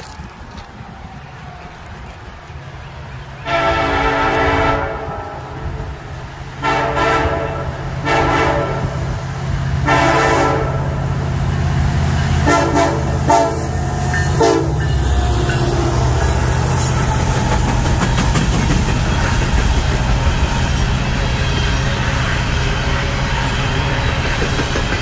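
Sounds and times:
diesel locomotive rumble: 0.0s - 25.0s
locomotive air horn blasts: 3.4s - 5.8s, 6.6s - 9.1s, 9.8s - 11.0s, 12.4s - 15.4s.

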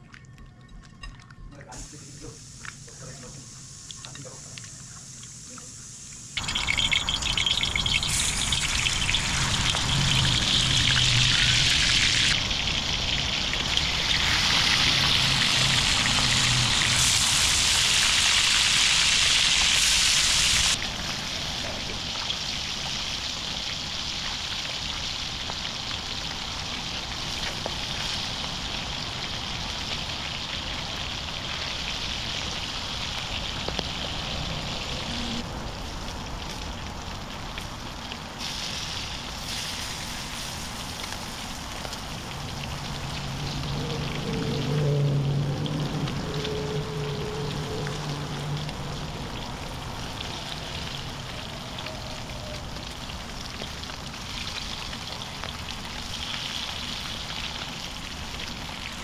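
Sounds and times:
water pouring: 6.4s - 19.9s.

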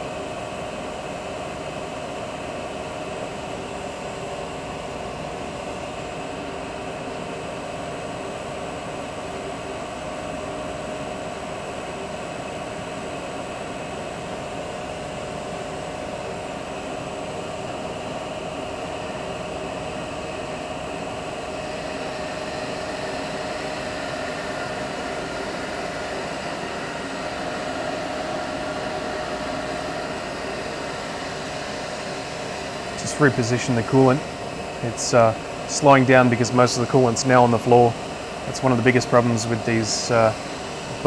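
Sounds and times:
lathe spindle whining: 16.2s - 41.0s.

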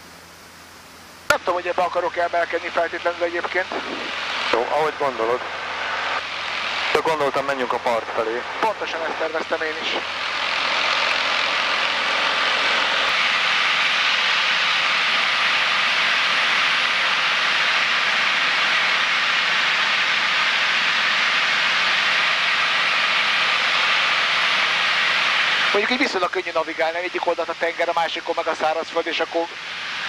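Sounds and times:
light aircraft engine drone: 0.0s - 30.0s.

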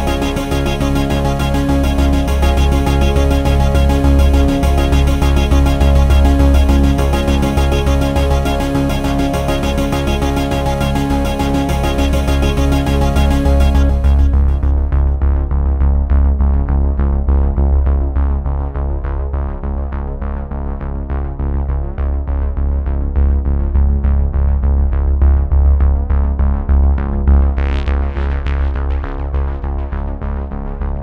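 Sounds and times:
drum machine beat: 0.0s - 14.6s
heavy bass: 0.0s - 31.0s
synthesizer: 0.0s - 31.0s.

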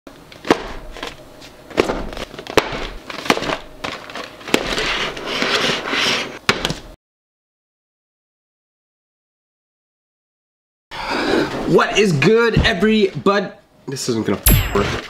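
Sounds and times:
cardboard rustling and scraping: 0.5s - 6.9s.

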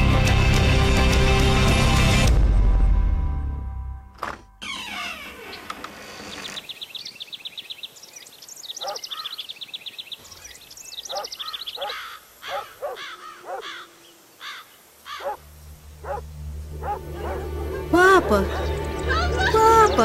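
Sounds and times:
harsh bird calls: 4.6s - 16.2s, 16.8s - 20.0s
bird trilling: 8.6s - 15.4s, 16.0s - 16.2s.

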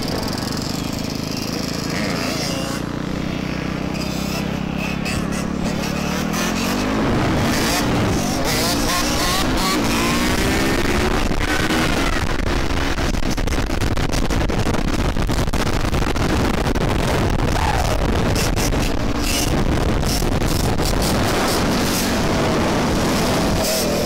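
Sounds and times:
dirt bike engines revving: 0.0s - 24.0s
wind hitting microphone: 6.9s - 24.0s.

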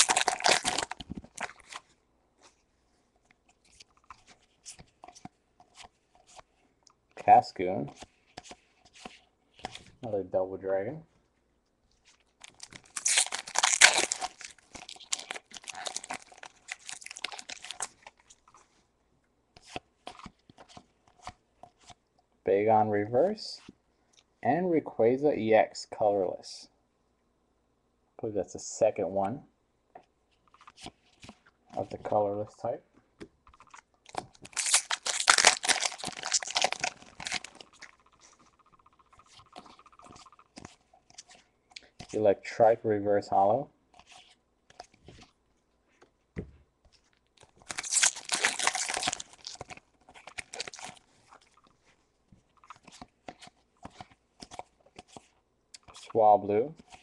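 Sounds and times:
foil wrapper tearing and crinkling: 0.0s - 1.8s, 12.4s - 17.9s, 34.1s - 38.1s, 47.4s - 51.6s.

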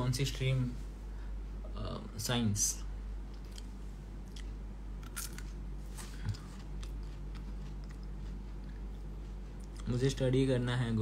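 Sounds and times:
low steady hum: 0.0s - 11.0s
man chewing crunchy food: 3.3s - 10.0s.

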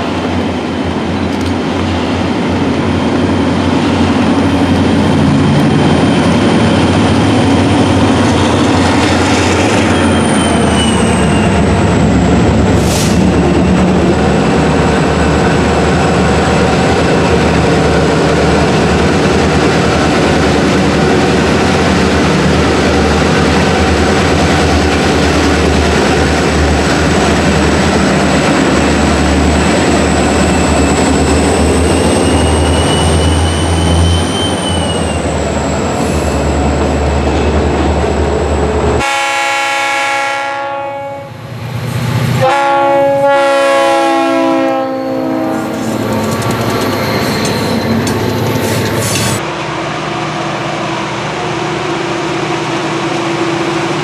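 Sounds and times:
diesel locomotive engines running hard: 0.0s - 54.0s
train rumble and clatter: 0.0s - 54.0s
locomotive air horn blasts: 39.0s - 41.4s, 42.4s - 45.9s.

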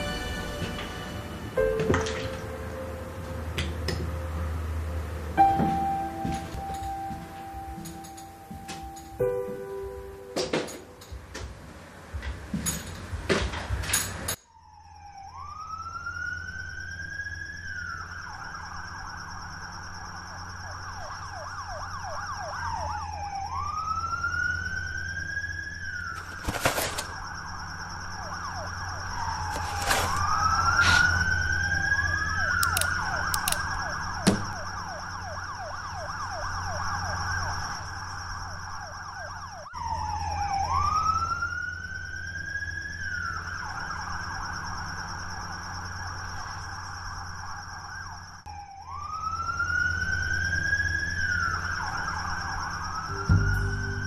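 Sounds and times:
emergency vehicle sirens: 0.0s - 12.2s, 14.3s - 54.0s.

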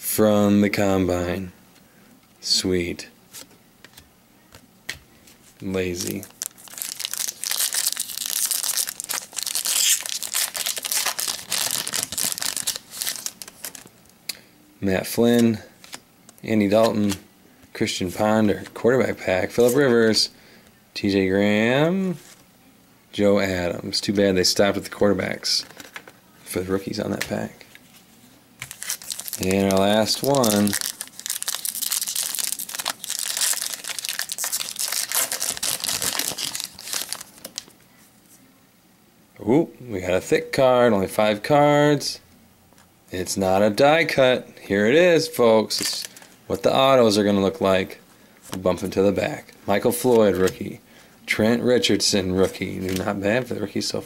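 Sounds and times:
foil wrapper tearing and crinkling: 5.9s - 13.9s, 28.6s - 37.7s.

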